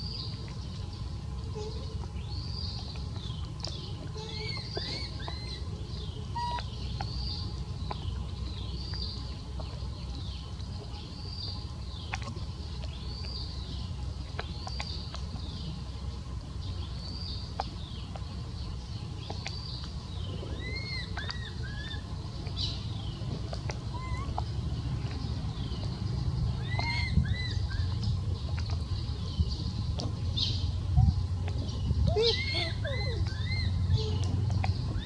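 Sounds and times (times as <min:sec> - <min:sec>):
low background hum: 0:00.0 - 0:35.0
lower animal calls: 0:04.1 - 0:05.7, 0:06.3 - 0:06.8, 0:23.8 - 0:24.6, 0:26.6 - 0:28.1, 0:32.0 - 0:35.0
high-pitched animal calls: 0:04.2 - 0:05.6, 0:23.9 - 0:24.5, 0:26.6 - 0:28.0, 0:32.0 - 0:34.3.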